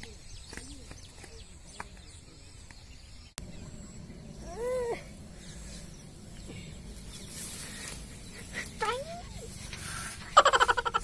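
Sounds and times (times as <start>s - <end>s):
low outdoor background: 0.0s - 11.0s.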